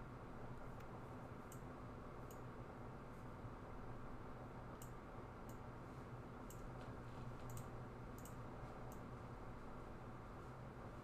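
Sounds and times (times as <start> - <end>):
faint low hum: 0.0 - 11.0
computer mouse clicking: 0.7 - 2.5, 4.7 - 5.7, 6.4 - 9.1.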